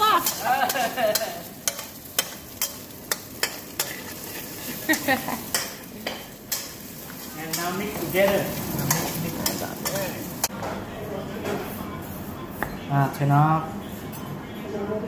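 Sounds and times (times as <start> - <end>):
egg sizzling: 0.0 - 10.5
metal spatula scraping wok: 0.1 - 10.5.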